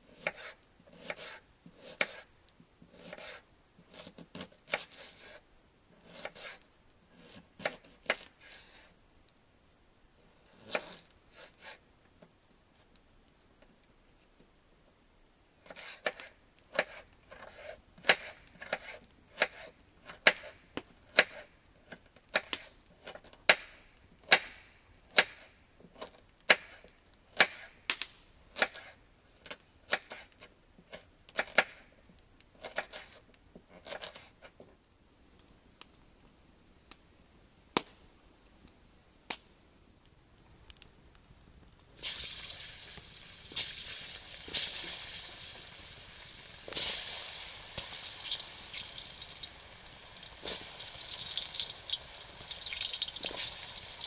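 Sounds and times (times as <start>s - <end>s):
knife chopping on wooden board: 0.1s - 2.2s, 2.9s - 5.1s.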